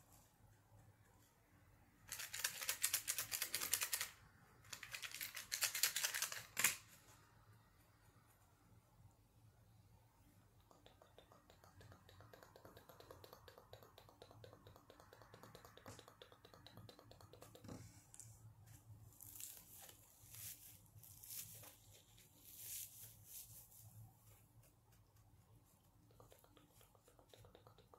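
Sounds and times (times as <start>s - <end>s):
scratching on a sponge: 19.1s - 27.9s.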